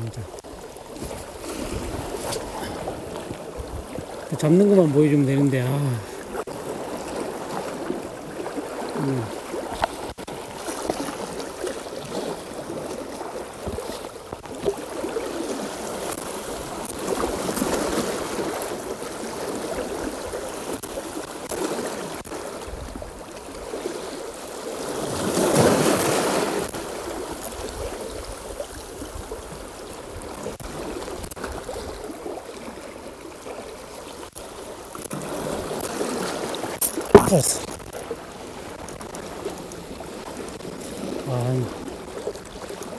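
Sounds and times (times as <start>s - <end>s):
sea water splashing against shore: 0.0s - 42.9s.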